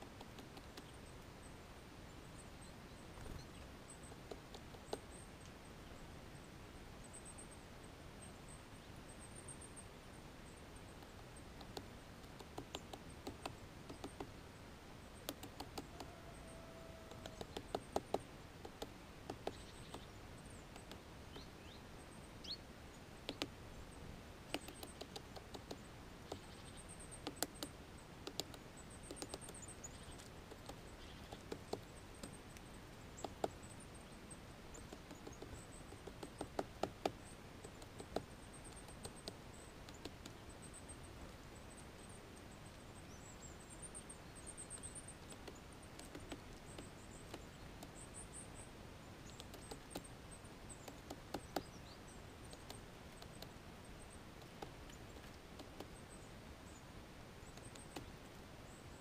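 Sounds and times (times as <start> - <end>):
woodpecker tapping: 0.0 - 1.0, 3.2 - 5.5, 10.9 - 14.4, 15.2 - 21.5, 23.2 - 23.6, 24.5 - 33.8, 34.7 - 41.4, 43.8 - 48.5, 49.2 - 56.3, 57.4 - 58.4.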